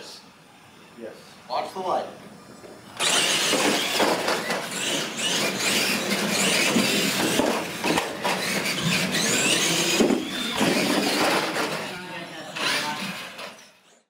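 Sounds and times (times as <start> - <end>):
rc truck motors whining: 1.9 - 14.0
tyre and drivetrain rush: 2.6 - 11.9.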